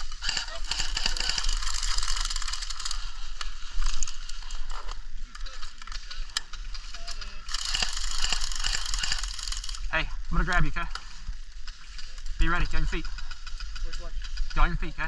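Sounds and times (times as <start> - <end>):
rapid mechanical ratcheting clicks: 0.0 - 4.4, 5.3 - 9.9.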